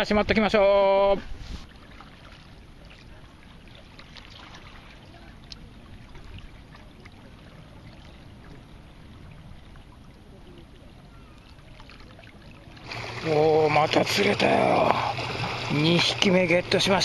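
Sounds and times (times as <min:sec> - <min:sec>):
river water lapping on stone: 0:01.1 - 0:17.0
small clicks and splashes: 0:01.8 - 0:08.7, 0:09.6 - 0:13.2.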